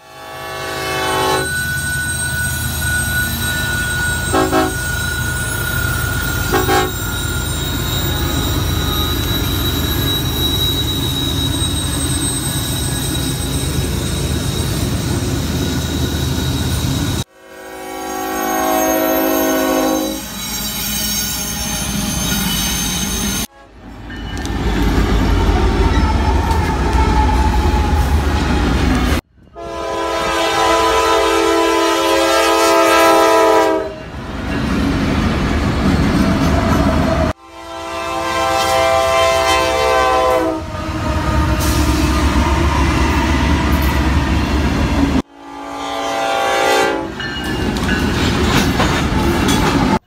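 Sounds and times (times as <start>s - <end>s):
locomotive air horn chord: 0.0s - 2.0s, 4.2s - 4.9s, 6.4s - 7.2s, 17.2s - 20.4s, 23.4s - 23.8s, 29.5s - 34.0s, 37.3s - 43.7s, 45.2s - 47.2s
locomotive engines rumbling: 1.2s - 17.3s, 19.1s - 31.1s
train wheels rolling: 47.1s - 50.0s.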